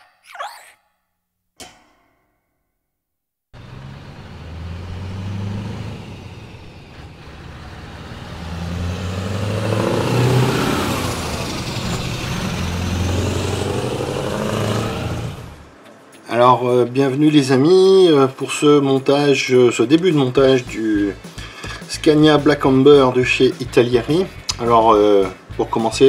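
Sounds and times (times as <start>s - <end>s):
truck engine revving: 3.6s - 15.8s.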